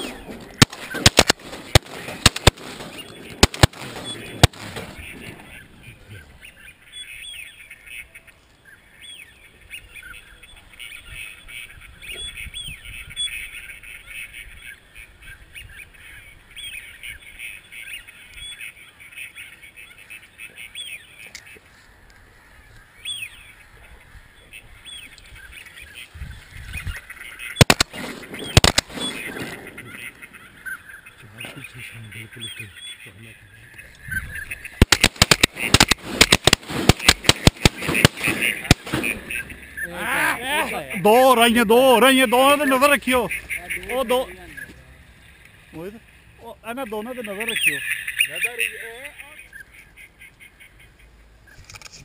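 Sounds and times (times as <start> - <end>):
sharp loud cracks: 0.0 - 5.6, 27.5 - 30.3, 34.7 - 39.8
ducks calling: 0.0 - 51.6.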